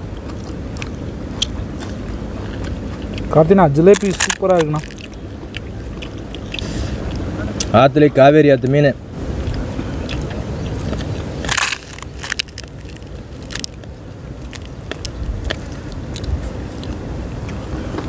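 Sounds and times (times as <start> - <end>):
crunching of fried fish: 0.0 - 7.8, 9.3 - 18.0
wind rumbling on microphone: 9.0 - 18.0.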